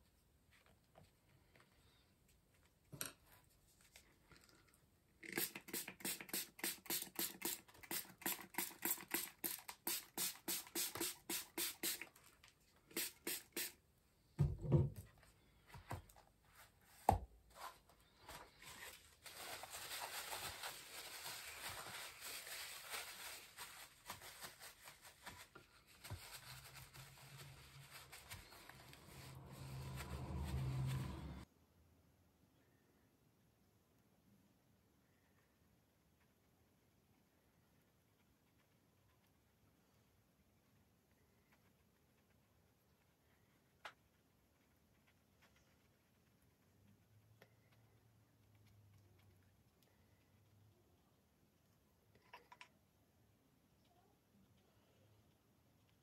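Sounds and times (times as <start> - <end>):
quick scratchy strokes on paper: 5.3 - 13.8, 18.3 - 31.4
paper towel rubbing paper: 5.4 - 12.2, 12.9 - 13.8, 17.6 - 31.4.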